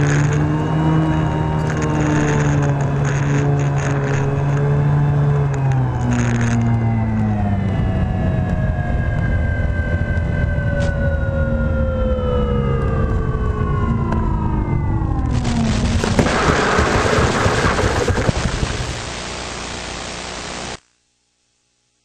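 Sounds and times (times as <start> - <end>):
model airplane motor whining: 0.0 - 8.9
plane crashing into ground: 15.2 - 19.0.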